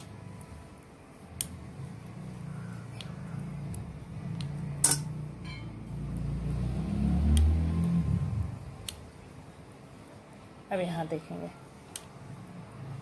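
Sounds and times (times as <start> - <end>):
metal knitting needles clicking: 7.2 - 8.0.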